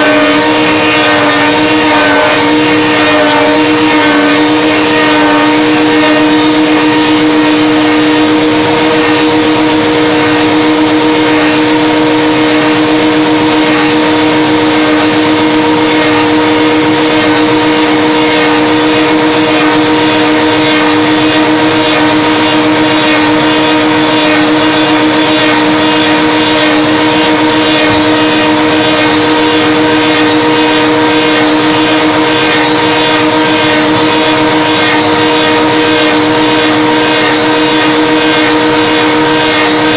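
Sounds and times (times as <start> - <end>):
wood cutting hiss: 0.0 - 8.1
lathe motors humming: 0.0 - 39.9.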